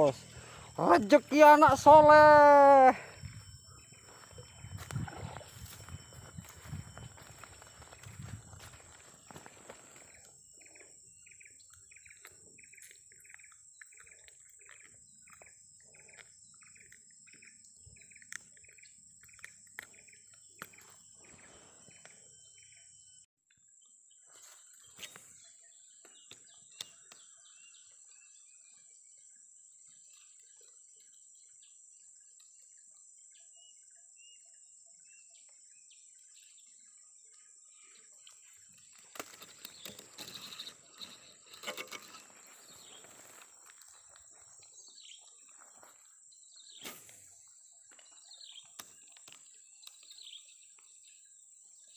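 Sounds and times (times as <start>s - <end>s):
high-pitched insect drone: 0.0s - 13.4s, 39.5s - 48.2s.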